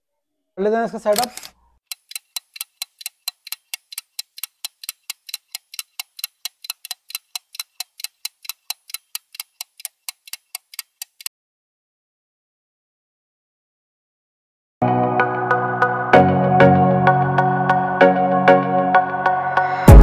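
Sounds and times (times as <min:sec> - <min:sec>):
rapid clock ticking: 0:01.1 - 0:11.3.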